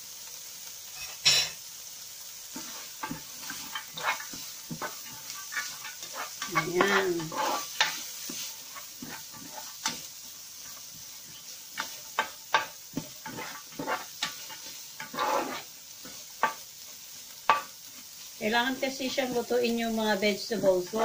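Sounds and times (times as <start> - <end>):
food sizzling in a pan: 0.0 - 21.0
utensil scraping a pan: 2.5 - 16.6, 20.4 - 21.0.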